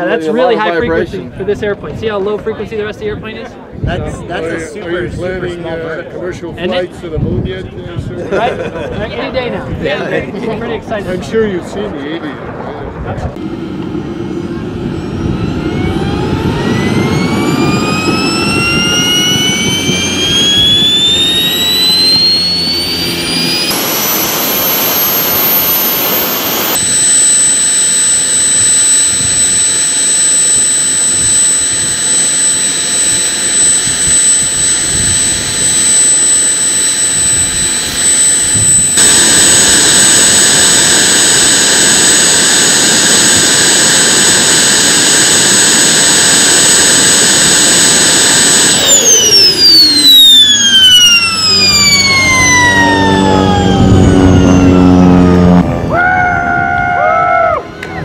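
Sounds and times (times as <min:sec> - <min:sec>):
turbojet engine whine: 0:00.0 - 0:58.0.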